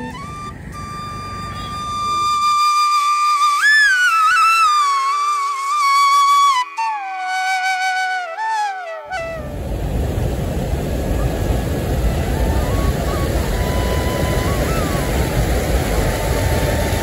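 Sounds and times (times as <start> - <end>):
solo flute melody: 0.0 - 10.0, 11.0 - 17.0
water roaring over weir: 9.1 - 17.0.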